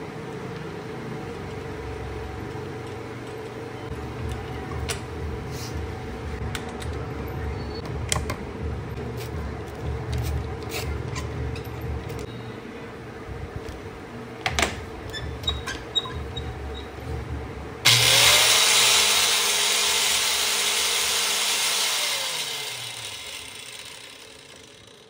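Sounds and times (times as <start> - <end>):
angle grinder running: 17.9 - 25.0.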